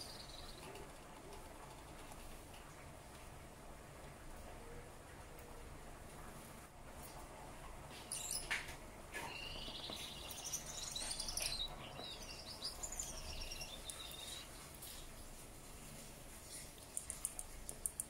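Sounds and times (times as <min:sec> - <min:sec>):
finch hiss: 0:09.2 - 0:15.3.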